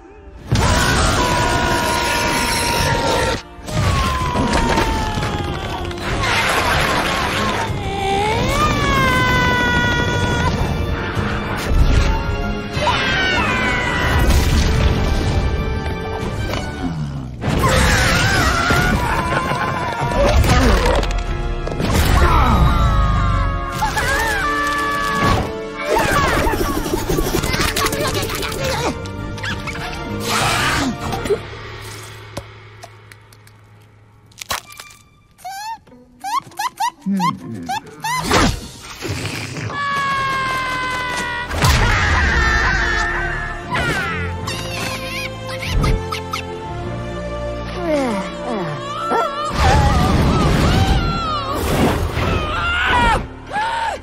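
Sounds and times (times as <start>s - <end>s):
action film music: 0.0s - 54.0s
cartoon character screaming: 8.3s - 10.6s
fast action score music: 25.5s - 31.8s
high squeaky cartoon voices: 35.4s - 38.6s.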